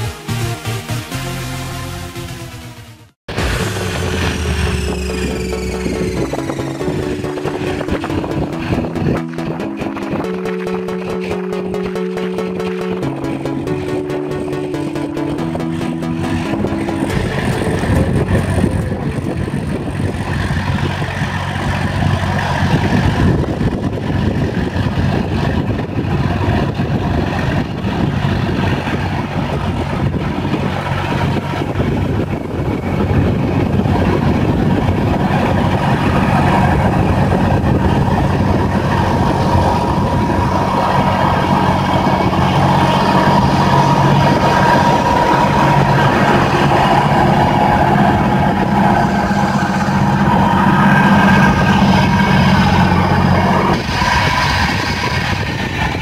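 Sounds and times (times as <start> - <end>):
steady whine: 3.3 - 56.0
tractor engine under load: 16.3 - 56.0.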